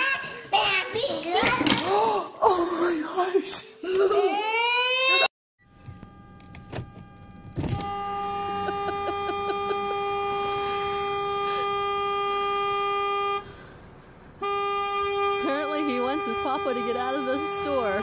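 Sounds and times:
car horn long blast: 0:05.7 - 0:13.8, 0:14.4 - 0:18.0.

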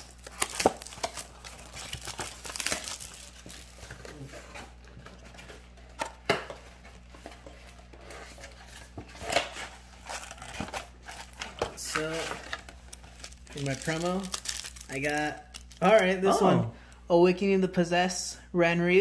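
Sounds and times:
plastic wrapping crinkling and tearing: 0:00.0 - 0:16.2.

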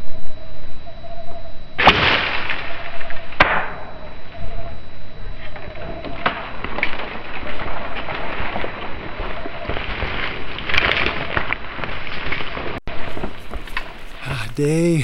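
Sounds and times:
bow shot cracks: 0:01.8 - 0:03.9.

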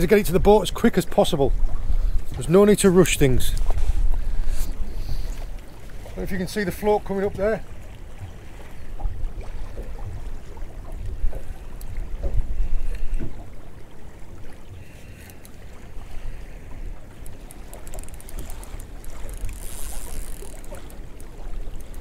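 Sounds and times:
water slapping against hull: 0:00.0 - 0:22.0
wind buffeting microphone: 0:07.2 - 0:13.6
faint ticks: 0:15.0 - 0:15.6, 0:17.1 - 0:22.0.

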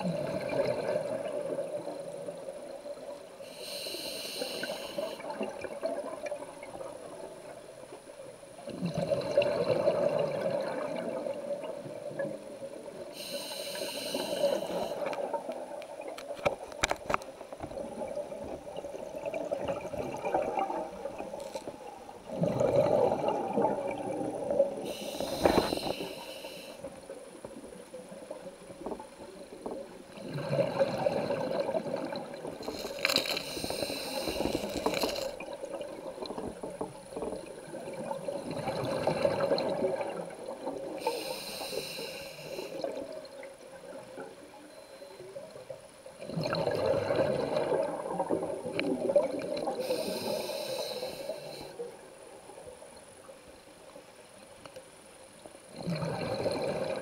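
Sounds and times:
regulator hissing inhale: 0:03.4 - 0:05.3, 0:13.1 - 0:15.2, 0:24.8 - 0:27.0, 0:32.6 - 0:35.4, 0:41.0 - 0:42.9, 0:49.8 - 0:51.9
bubbling exhale: 0:22.2 - 0:26.8, 0:30.2 - 0:35.5, 0:49.0 - 0:51.8, 0:55.8 - 0:57.0.

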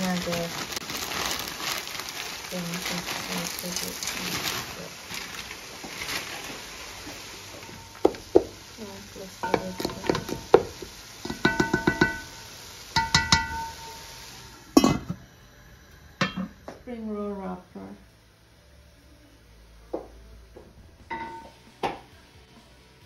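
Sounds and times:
food sizzling in a pot: 0:00.0 - 0:19.0, 0:20.0 - 0:23.0
spatula knocking and scraping pot: 0:11.3 - 0:12.3.

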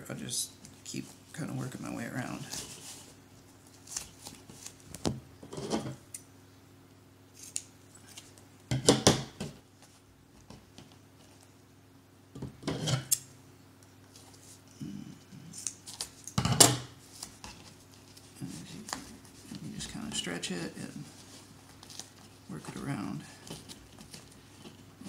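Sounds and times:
vinyl patch rustling: 0:00.6 - 0:05.1, 0:17.0 - 0:25.0.

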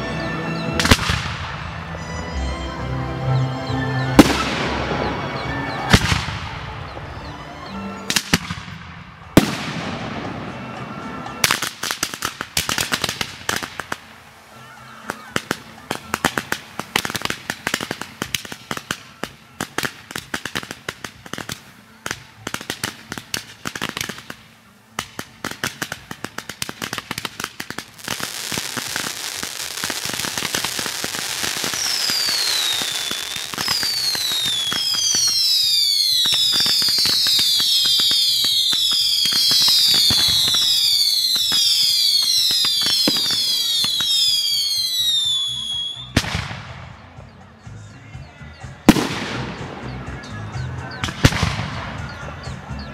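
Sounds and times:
fireworks whistles falling in pitch: 0:00.0 - 0:02.6, 0:03.2 - 0:47.0
fireworks crackling: 0:00.0 - 0:52.9
fireworks hiss: 0:08.0 - 0:46.9.

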